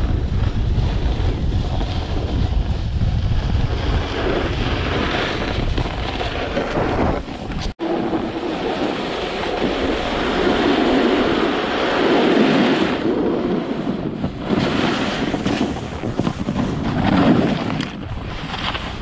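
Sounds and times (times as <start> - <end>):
snowboard scraping over snow: 0.0 - 19.0
wind buffeting microphone: 0.0 - 19.0.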